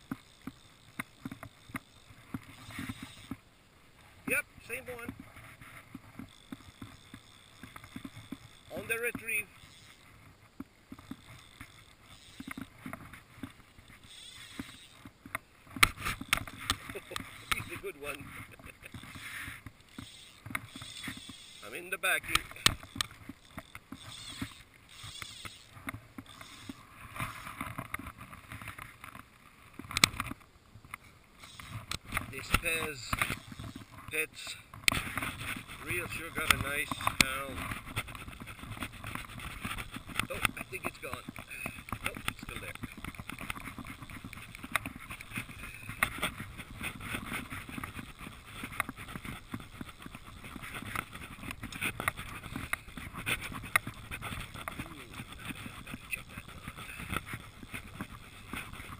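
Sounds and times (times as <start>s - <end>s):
fly reel clicking: 0.0s - 58.9s.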